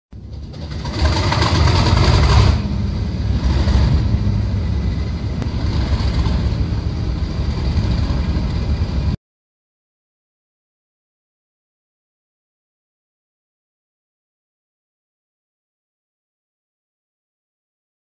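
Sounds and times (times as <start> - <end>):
diesel locomotive engine running: 0.1 - 9.2.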